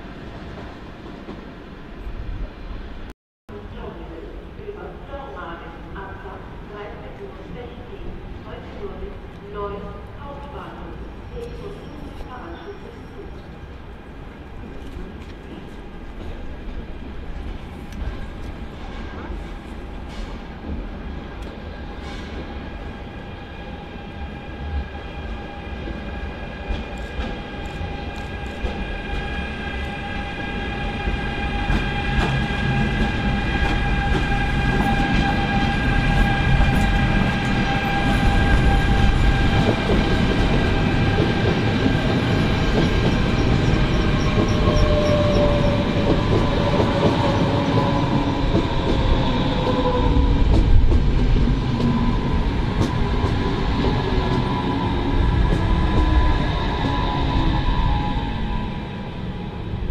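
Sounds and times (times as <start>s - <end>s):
electric locomotive whine: 20.8s - 59.9s
train wheels rumbling and clicking: 25.4s - 58.0s.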